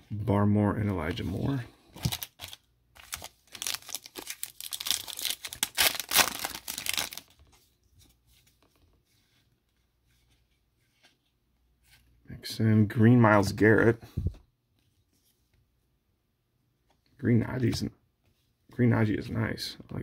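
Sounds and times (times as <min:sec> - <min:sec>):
foil wrapper tearing and crinkling: 0:02.0 - 0:07.3.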